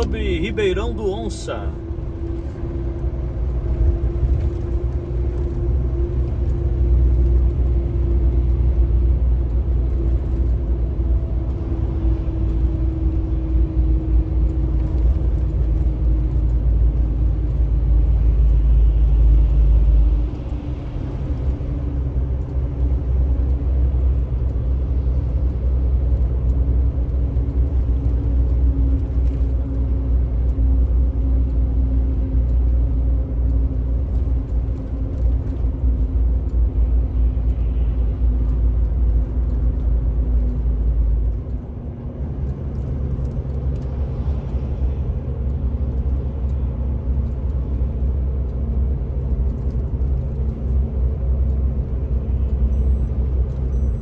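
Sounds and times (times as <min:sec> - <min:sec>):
engine hum: 0:00.0 - 0:54.0
road noise inside vehicle: 0:00.0 - 0:54.0.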